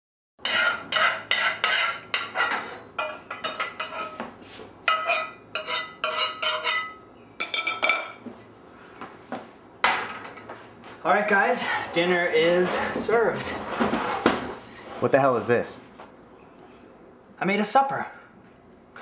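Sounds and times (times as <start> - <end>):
metal utensil clanking on frying pan: 0.4 - 4.2.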